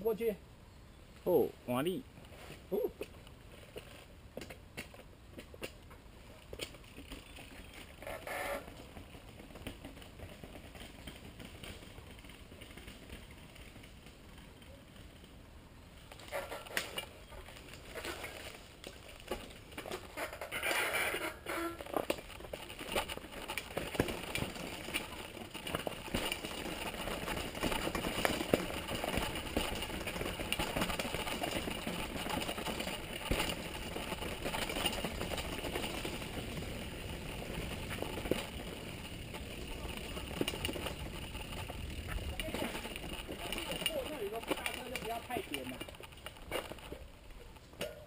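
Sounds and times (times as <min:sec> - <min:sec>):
mountain bike rattling: 0:02.4 - 0:48.0.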